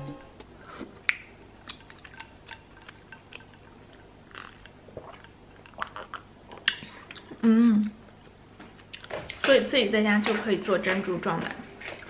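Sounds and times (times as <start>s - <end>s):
chewing: 0.8s - 8.0s.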